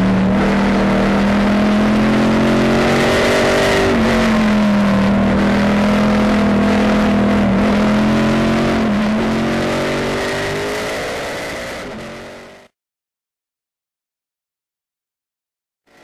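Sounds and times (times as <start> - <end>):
race car engine at speed: 0.0 - 12.7.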